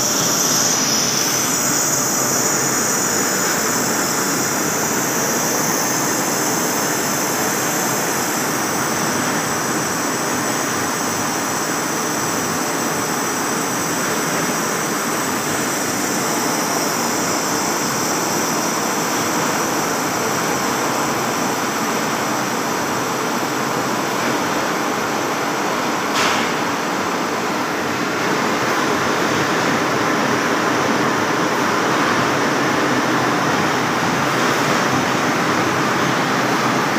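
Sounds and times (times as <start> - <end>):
lathe machining steel: 0.0 - 11.5.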